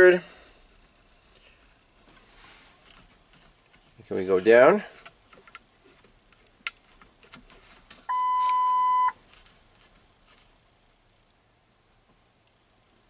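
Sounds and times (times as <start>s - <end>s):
electronic beep: 8.1s - 9.2s.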